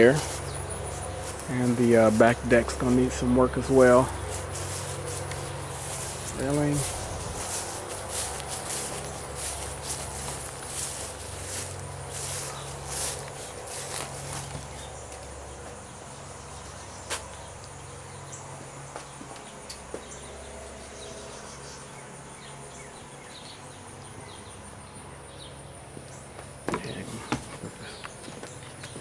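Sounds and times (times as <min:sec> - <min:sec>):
insects droning: 0:00.0 - 0:29.0
footsteps on wooden deck: 0:04.1 - 0:15.9, 0:18.9 - 0:20.2, 0:25.9 - 0:29.0.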